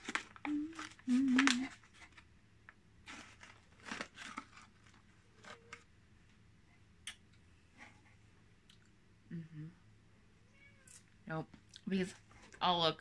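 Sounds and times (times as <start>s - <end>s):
snack pouch crinkling: 0.0s - 2.2s, 3.1s - 5.8s.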